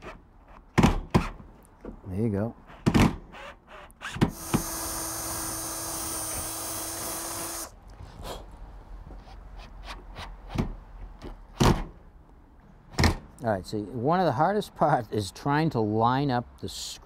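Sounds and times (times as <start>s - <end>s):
cordless drill running: 3.4s - 7.7s.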